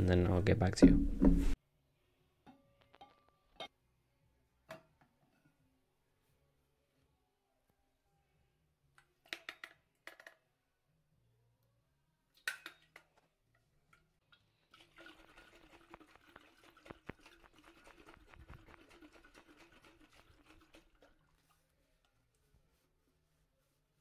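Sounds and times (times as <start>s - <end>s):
water sloshing in bottle: 14.3s - 21.6s.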